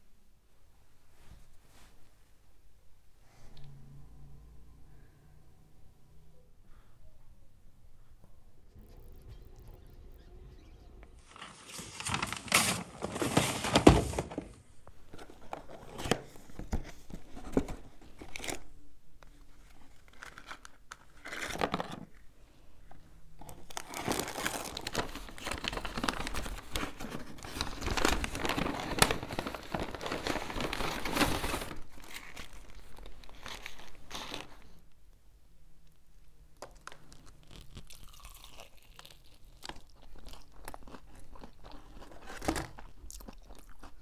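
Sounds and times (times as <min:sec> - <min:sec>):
paper bag and wrappers crinkling: 0:11.2 - 0:18.7, 0:19.6 - 0:22.1, 0:23.4 - 0:34.8, 0:38.8 - 0:44.0.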